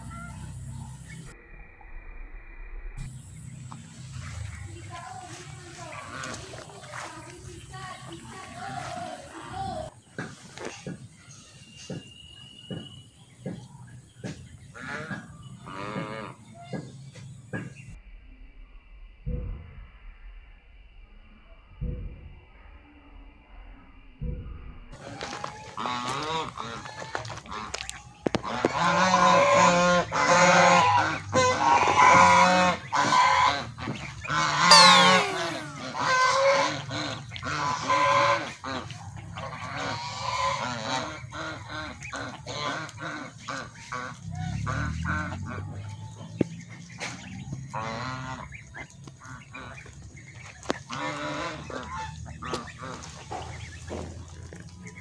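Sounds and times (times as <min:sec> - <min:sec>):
geese honking: 0:05.7 - 0:06.8, 0:25.0 - 0:46.0, 0:46.8 - 0:53.9.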